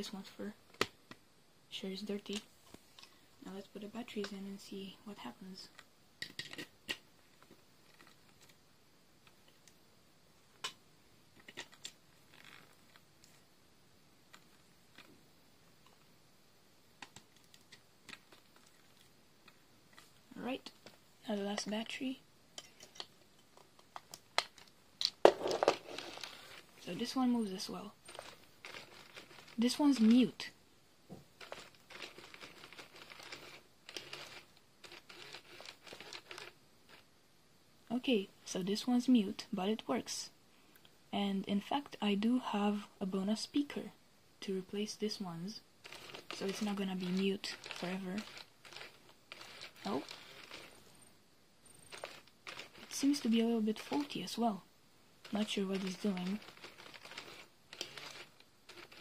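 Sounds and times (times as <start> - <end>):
faint rustle: 25.4 - 30.6, 31.3 - 37.1, 45.8 - 54.6, 55.2 - 59.0
toy motor whirring and clicking: 28.0 - 30.4, 31.4 - 37.0, 45.8 - 50.8, 51.7 - 54.4, 55.2 - 59.0.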